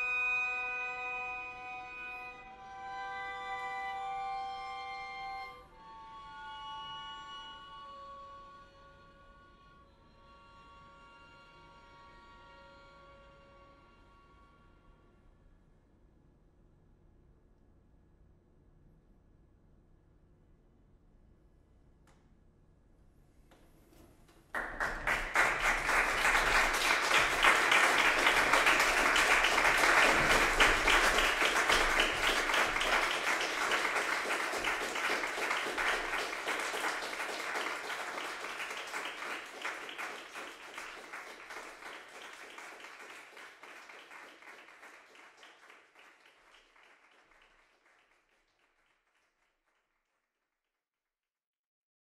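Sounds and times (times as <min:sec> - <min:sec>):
audience applause: 0:24.5 - 0:49.3.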